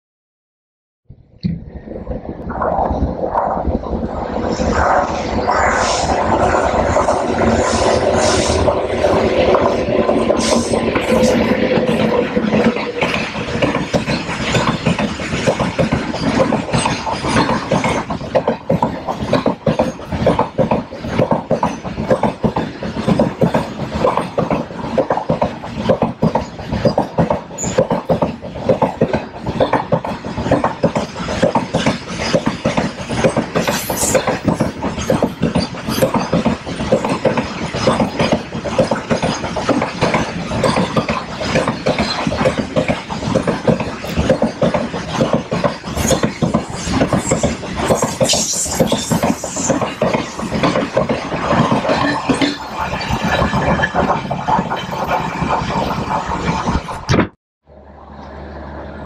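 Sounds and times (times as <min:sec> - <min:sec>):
train wheels clattering on rails: 0:04.8 - 0:57.1.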